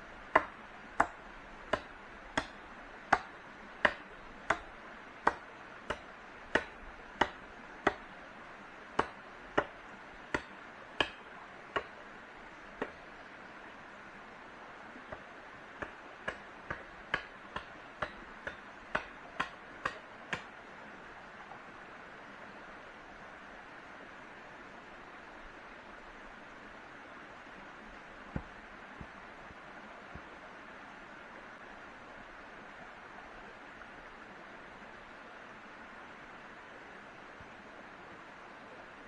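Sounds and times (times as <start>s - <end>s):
hand tool striking wood: 0.3s - 8.0s, 9.0s - 11.9s, 15.8s - 20.5s.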